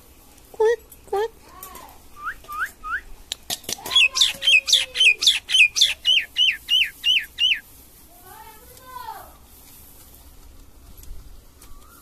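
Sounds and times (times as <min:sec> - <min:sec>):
myna calling: 0:03.8 - 0:07.6.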